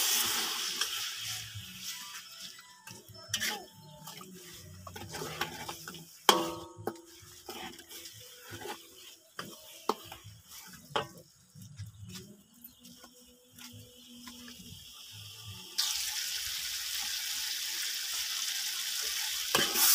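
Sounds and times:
ladle scraping metal wok: 0.0 - 11.4, 19.5 - 19.9.

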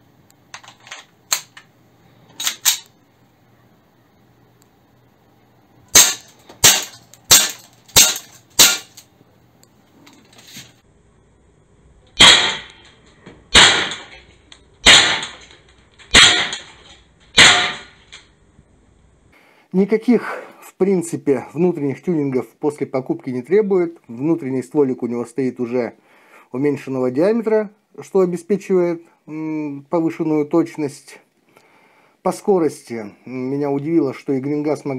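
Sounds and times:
pistol loading clicks: 0.6 - 1.7, 2.4 - 3.0
airsoft pistol shots: 5.9 - 9.0, 12.2 - 12.8, 13.5 - 14.2, 14.8 - 15.5, 16.1 - 16.7, 17.4 - 18.0.

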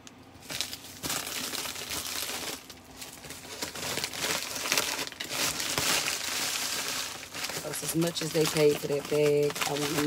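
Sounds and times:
plastic mailer crinkling: 0.4 - 10.0.

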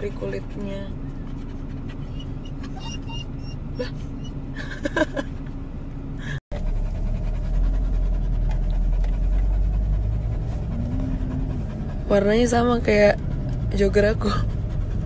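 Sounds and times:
dog panting: 0.0 - 4.3, 6.5 - 15.0
low road rumble: 0.0 - 15.0.

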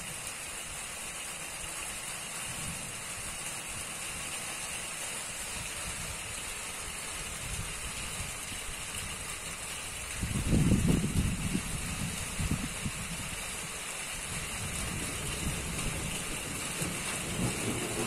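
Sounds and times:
rain hissing: 0.0 - 18.0
thunder rumble: 14.4 - 18.0.

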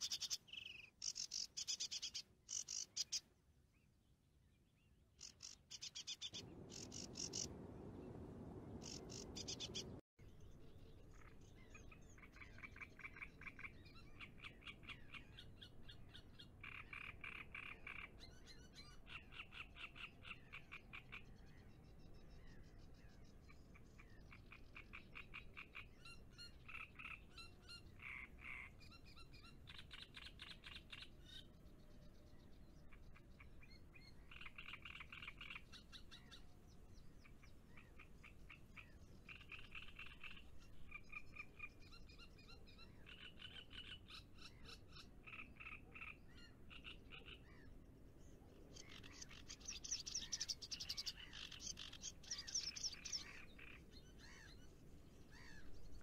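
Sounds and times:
frogs croaking: 5.2 - 7.7, 8.8 - 10.0.

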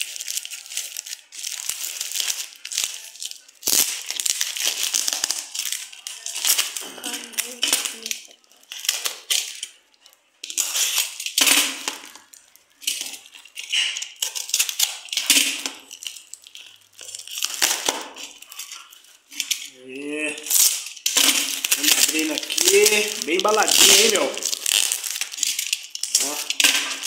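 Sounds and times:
plastic wrap crinkling and ripping: 0.0 - 27.0
knife slitting packaging: 10.5 - 12.2, 20.4 - 27.0.

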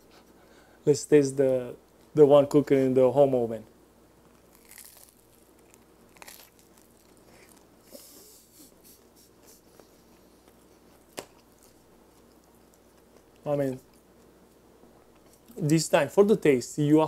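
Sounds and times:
bread crunching while chewing: 4.3 - 7.8, 9.8 - 13.4.

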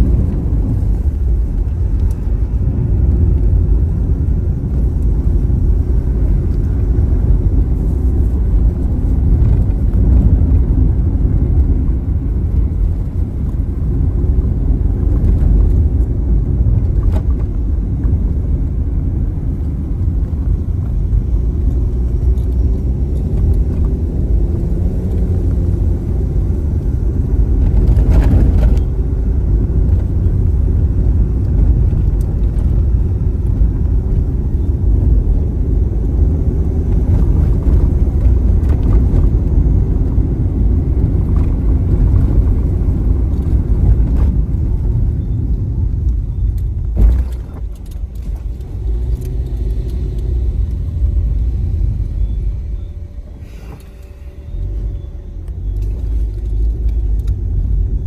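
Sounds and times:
car engine and tyre rumble: 0.0 - 58.0.

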